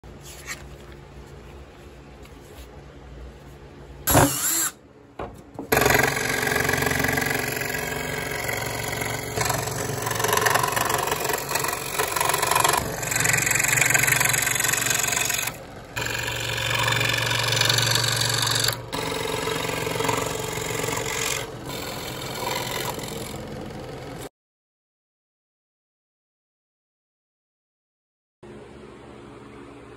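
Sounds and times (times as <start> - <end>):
scroll saw cutting wood: 5.7 - 24.3.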